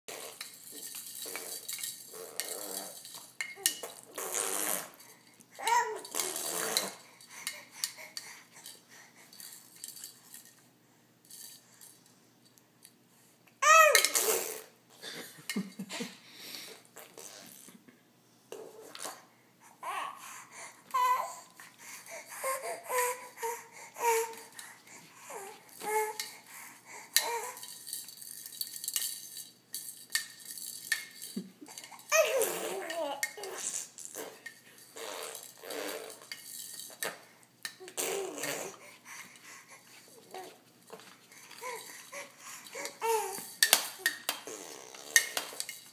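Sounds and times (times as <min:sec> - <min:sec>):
plastic toy rings clinking: 0:00.1 - 0:04.1, 0:27.1 - 0:33.8, 0:34.4 - 0:38.6, 0:41.4 - 0:45.9
baby blowing a raspberry: 0:01.3 - 0:03.0, 0:03.9 - 0:05.1, 0:14.1 - 0:14.8, 0:35.0 - 0:36.3, 0:37.9 - 0:38.9, 0:44.4 - 0:45.6
baby cooing: 0:05.6 - 0:07.0, 0:20.9 - 0:21.5, 0:32.1 - 0:34.4, 0:37.8 - 0:38.9, 0:41.5 - 0:45.4.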